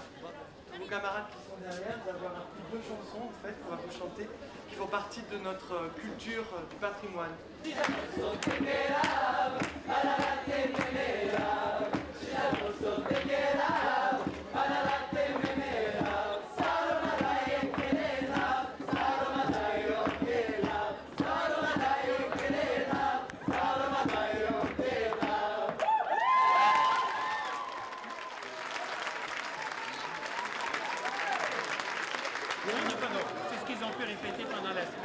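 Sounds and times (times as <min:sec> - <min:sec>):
young voices singing together: 0:07.7 - 0:25.8
hand clapping in rhythm: 0:07.7 - 0:33.3.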